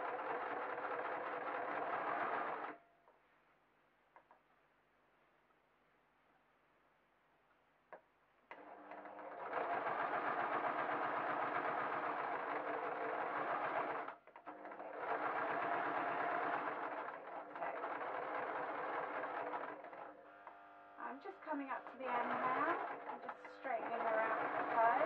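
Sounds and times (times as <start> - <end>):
electric sewing machine stitching: 0.0 - 2.8, 8.5 - 25.0.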